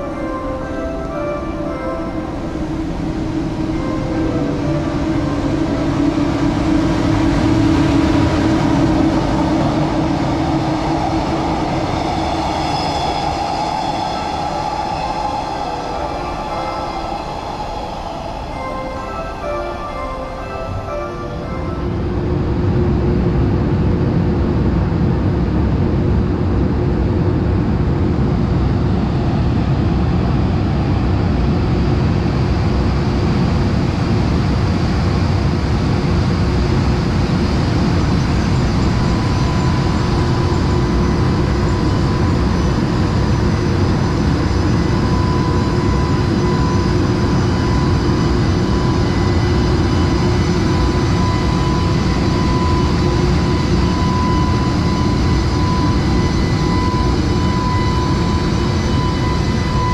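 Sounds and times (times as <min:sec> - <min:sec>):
thin high tone: 0:00.0 - 0:07.5, 0:11.9 - 0:22.8
locomotive hum and rumble: 0:00.0 - 0:19.0, 0:21.4 - 0:59.9.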